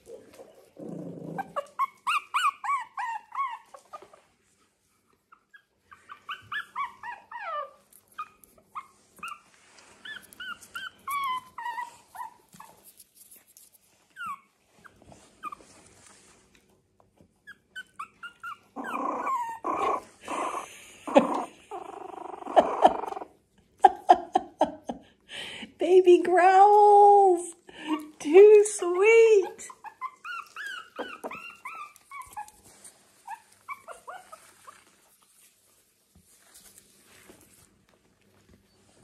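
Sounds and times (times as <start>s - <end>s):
puppy growling: 0.0s - 4.2s, 17.9s - 24.0s, 29.4s - 35.0s
puppies whimpering: 0.0s - 4.3s, 5.1s - 12.7s, 17.4s - 23.3s, 27.8s - 35.4s.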